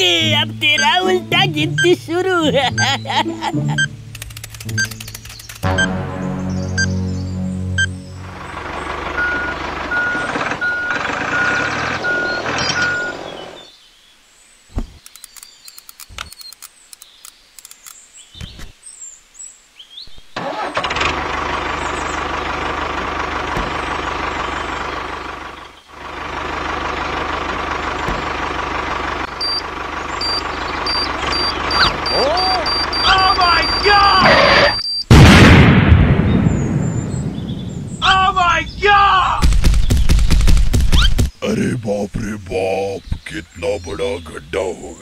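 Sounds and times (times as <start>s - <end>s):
tractor engine running: 0.0s - 3.0s, 3.7s - 13.7s, 20.4s - 35.9s, 36.9s - 44.9s
countdown timer beeping: 0.7s - 2.1s, 3.7s - 4.0s, 5.7s - 6.0s, 7.7s - 8.0s, 30.2s - 34.2s
small clicks: 4.1s - 5.7s, 15.0s - 18.0s.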